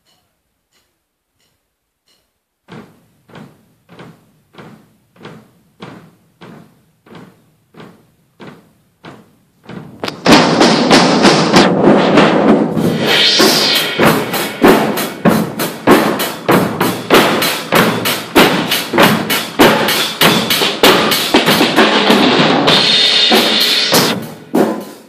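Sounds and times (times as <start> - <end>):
loud drums and cymbals: 9.7 - 25.0.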